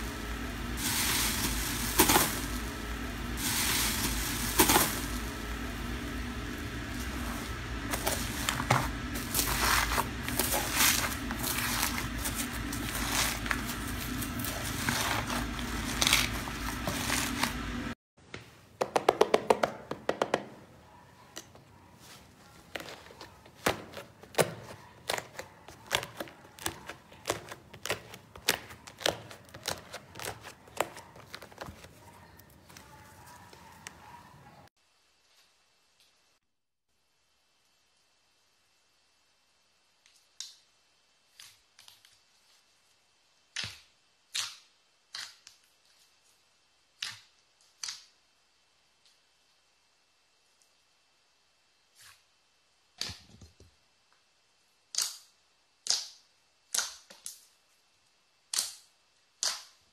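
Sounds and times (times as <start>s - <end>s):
slime squishing by hand: 7.0s - 17.9s, 22.5s - 34.1s.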